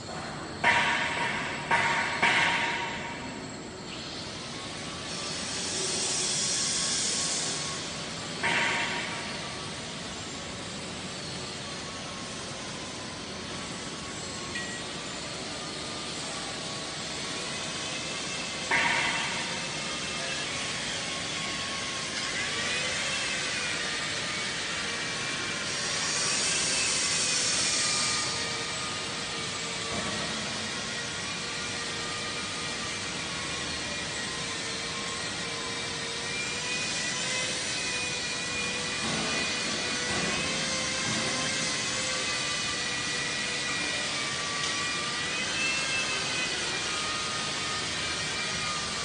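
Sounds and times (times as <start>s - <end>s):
industrial machinery whirring: 0.0s - 49.0s
faint high whines: 2.8s - 30.0s.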